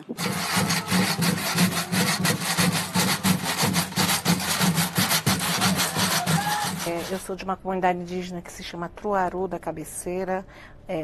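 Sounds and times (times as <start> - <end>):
shaken or scraped percussion: 0.0 - 7.3.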